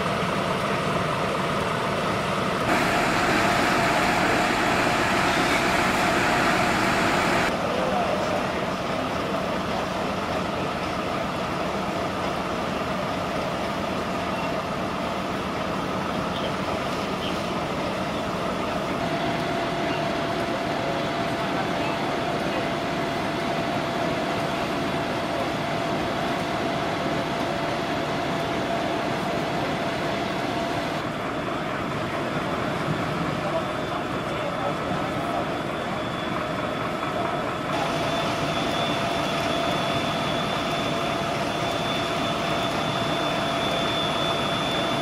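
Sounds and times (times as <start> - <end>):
vehicle engine running: 0.4 - 7.6.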